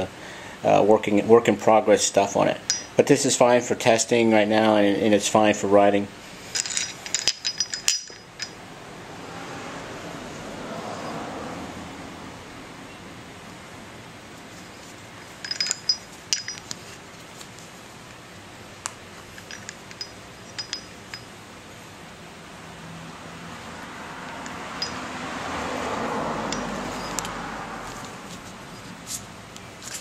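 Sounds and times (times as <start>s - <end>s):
small metal parts clinking: 2.6s - 3.0s, 6.4s - 8.6s, 14.6s - 17.0s, 19.2s - 21.3s, 24.2s - 25.0s, 26.4s - 27.3s.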